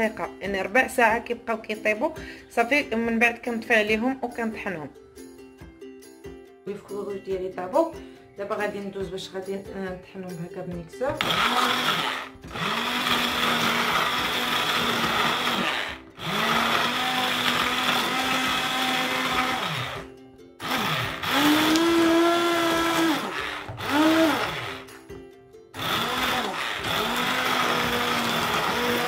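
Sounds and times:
stick blender motor whine: 11.2 - 24.9, 25.8 - 29.0.

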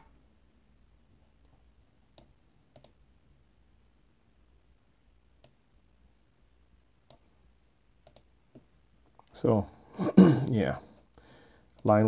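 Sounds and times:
computer mouse clicks: 2.1 - 3.0, 5.4 - 5.6, 7.0 - 7.2, 8.0 - 8.7.

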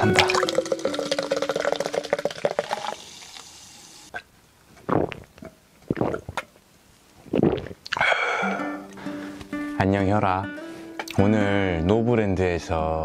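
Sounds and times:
drink pouring into glass: 0.0 - 3.6
fizzing hiss: 0.0 - 4.1
swallowing gulps: 4.8 - 6.5, 7.2 - 8.2.

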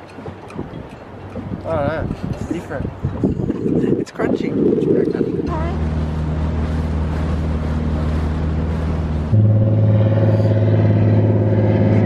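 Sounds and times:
engine droning: 4.8 - 12.0.

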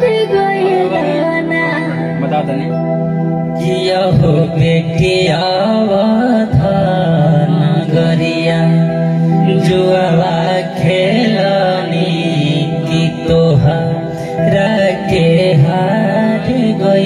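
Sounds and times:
man singing into a microphone: 3.5 - 17.0.

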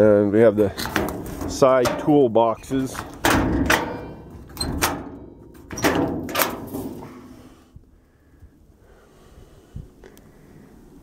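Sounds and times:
metal toolbox door clanking: 0.8 - 7.4.

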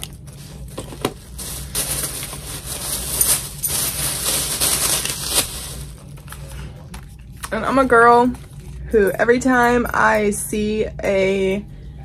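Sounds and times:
packaging rustling and crinkling: 0.0 - 7.2
steady low hum: 0.0 - 12.0.

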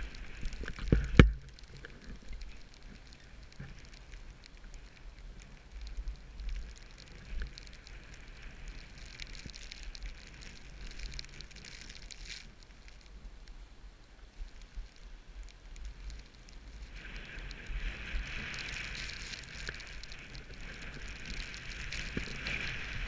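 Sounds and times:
skis hissing over snow: 15.9 - 23.0.

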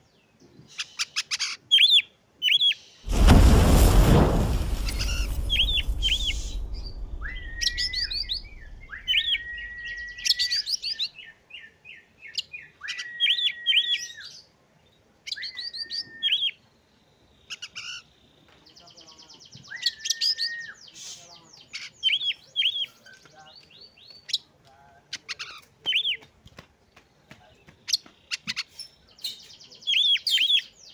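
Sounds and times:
low rumble: 3.1 - 10.3.

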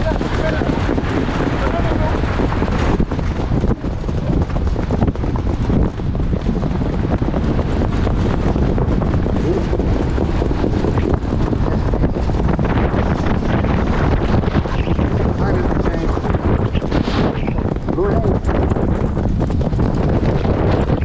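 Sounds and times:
hoofbeats on dirt track: 0.0 - 21.0
wind buffeting microphone: 0.0 - 21.0.

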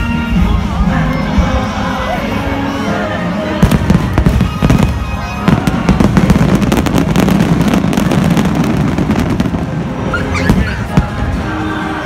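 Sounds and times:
fireworks bangs and crackles: 3.4 - 11.6.

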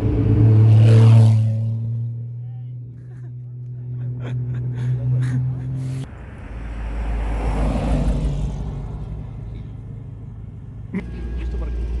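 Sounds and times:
car engine passing by: 0.0 - 2.4, 3.7 - 9.5
low droning hum: 1.9 - 6.0.

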